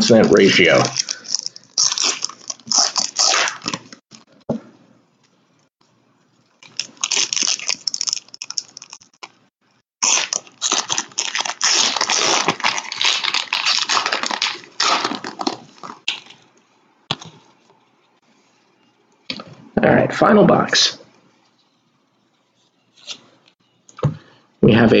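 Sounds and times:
foil wrapper crinkling and tearing: 0.4s - 4.3s, 6.6s - 9.4s, 10.0s - 16.5s.

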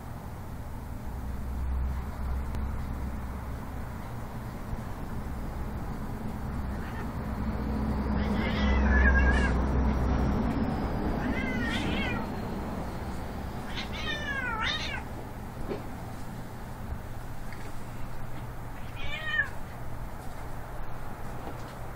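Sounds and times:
cat meowing: 6.7s - 7.2s, 8.2s - 9.6s, 11.2s - 12.3s, 13.6s - 15.1s, 18.8s - 19.6s.

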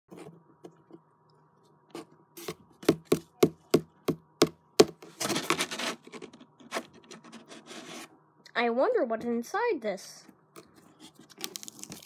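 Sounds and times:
knocking on cardboard box: 2.8s - 5.6s.

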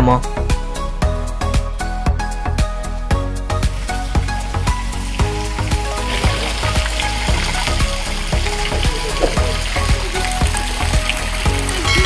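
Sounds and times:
background music with beat: 0.0s - 12.0s
fountain water splashing: 3.5s - 12.0s.

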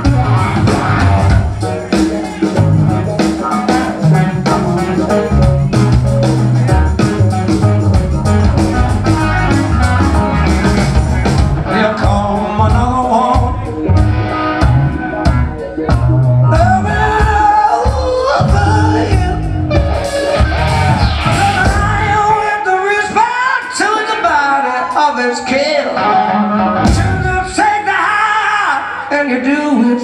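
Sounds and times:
rock band playing: 0.0s - 29.1s
man singing lead vocal: 11.6s - 14.0s, 16.3s - 19.9s, 21.2s - 30.0s.

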